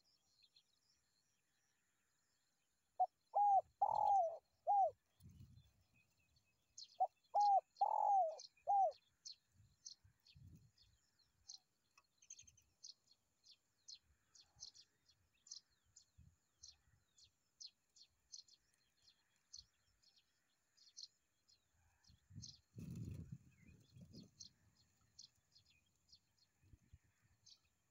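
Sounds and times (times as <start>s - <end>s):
dove cooing: 3.0s - 5.0s, 7.0s - 9.0s
small birds chirping: 3.0s - 27.9s.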